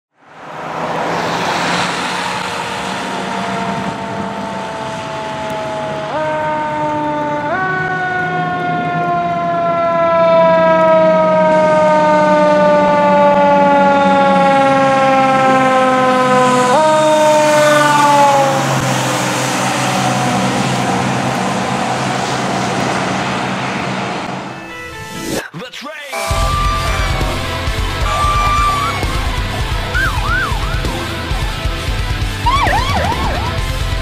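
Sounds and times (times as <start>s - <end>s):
fire engine siren wailing: 0.3s - 25.0s, 26.2s - 34.0s
truck engine running: 26.3s - 34.0s.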